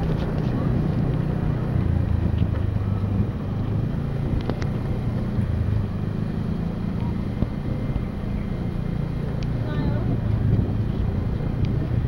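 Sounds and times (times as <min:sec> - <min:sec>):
motorcycle engine running: 0:00.0 - 0:12.0
wind on microphone: 0:09.8 - 0:12.0.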